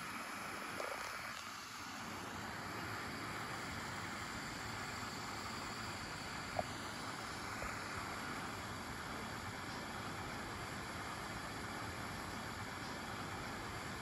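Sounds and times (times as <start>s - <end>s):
hot air blower hissing: 0.0s - 10.2s.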